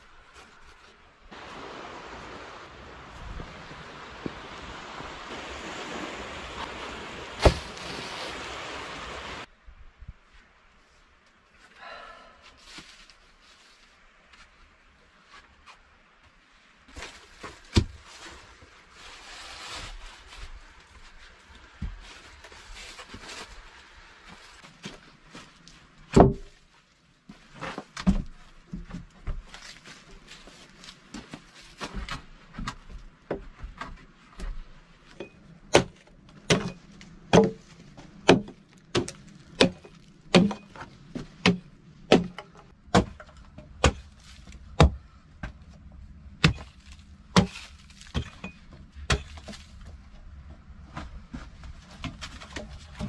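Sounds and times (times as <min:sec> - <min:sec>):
axe striking wood: 0:35.7 - 0:37.6, 0:38.2 - 0:44.1, 0:44.8 - 0:45.0, 0:46.4 - 0:46.7, 0:47.3 - 0:49.6
knocks of wood on wood: 0:35.7 - 0:44.1.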